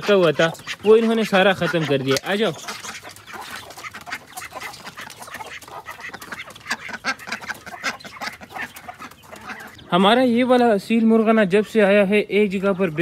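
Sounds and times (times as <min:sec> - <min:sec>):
chickens clucking: 0:00.0 - 0:13.0.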